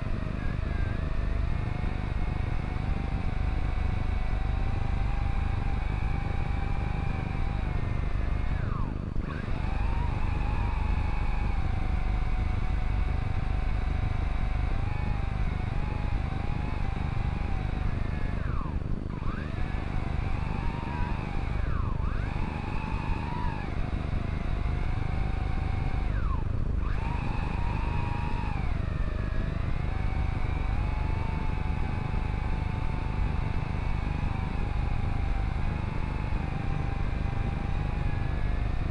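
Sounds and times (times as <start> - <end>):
drone propellers whining: 0.0 - 38.9.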